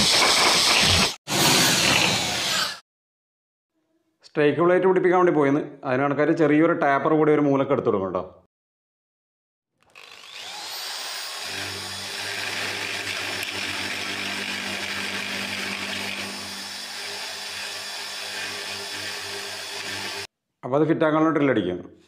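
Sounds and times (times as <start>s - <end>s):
electric drill running: 9.8s - 20.3s.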